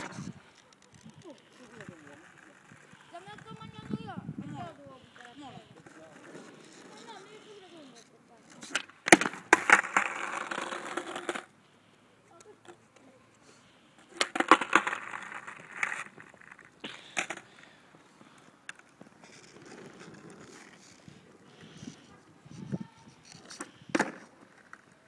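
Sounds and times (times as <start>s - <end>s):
skateboard wheels rolling on asphalt: 0.0s - 11.8s, 13.8s - 25.0s
skateboard clacking: 5.8s - 11.5s, 14.0s - 25.0s.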